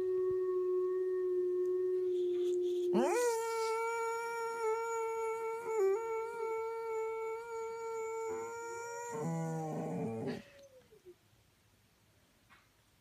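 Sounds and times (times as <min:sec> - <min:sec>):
dog howling: 0:02.4 - 0:11.0.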